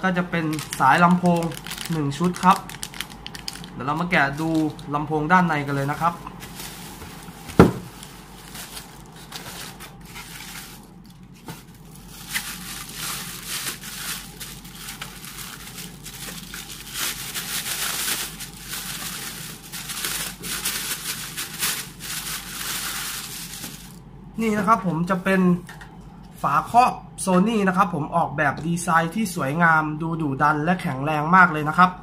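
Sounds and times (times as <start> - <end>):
plastic bag crinkling: 0.0 - 5.0, 5.6 - 24.0.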